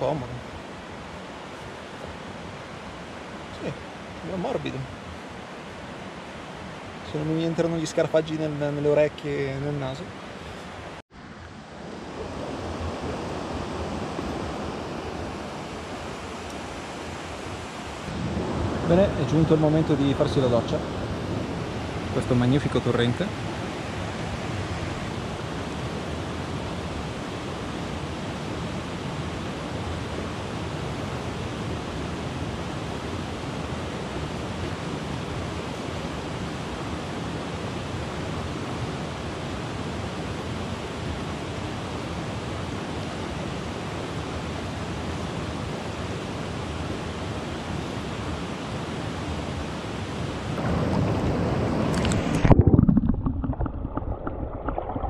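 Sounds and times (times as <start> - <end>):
mountain stream rushing over rocks: 0.0 - 55.0
muffled underwater water sound: 50.5 - 55.0.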